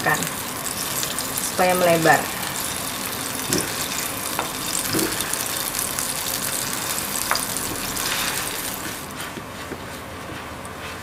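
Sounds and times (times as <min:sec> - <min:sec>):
dough sizzling in frying pan: 0:00.0 - 0:09.8.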